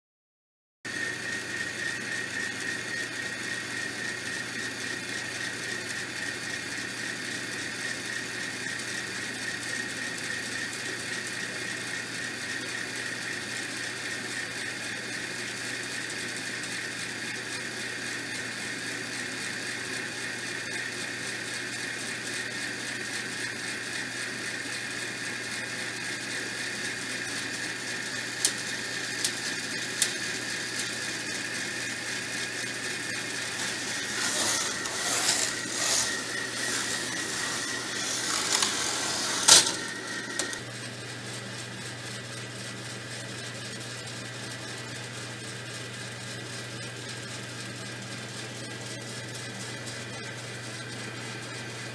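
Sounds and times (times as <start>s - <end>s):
electric motor whine: 26.1s - 40.7s.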